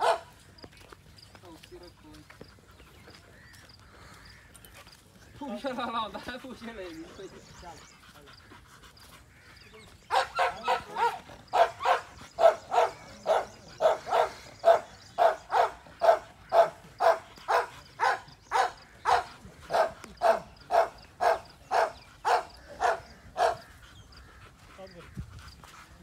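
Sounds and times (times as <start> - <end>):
dog barking: 0.0 - 0.3, 10.1 - 23.7.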